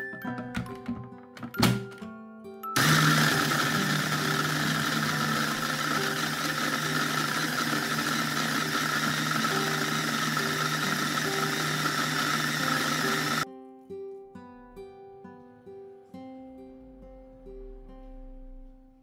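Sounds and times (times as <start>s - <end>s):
food chopper motor running: 2.8s - 13.4s.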